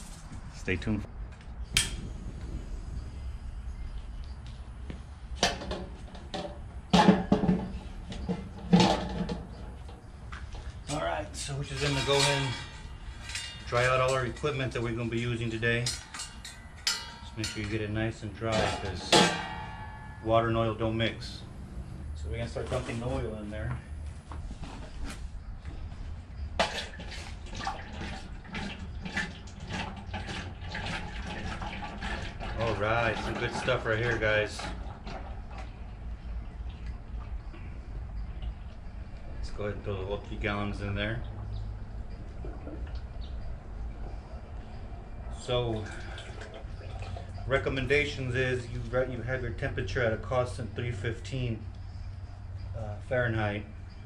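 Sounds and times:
metal pot clanking on stand: 0:05.4 - 0:10.0, 0:11.5 - 0:21.0
oil pouring into a metal pot: 0:26.7 - 0:35.7.

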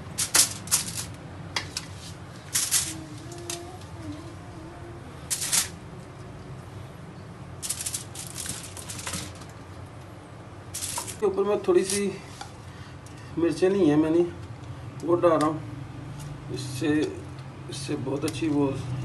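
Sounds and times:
aluminium foil crinkling: 0:00.1 - 0:01.2, 0:02.4 - 0:03.6, 0:05.3 - 0:05.8, 0:07.6 - 0:09.6, 0:10.8 - 0:11.2.

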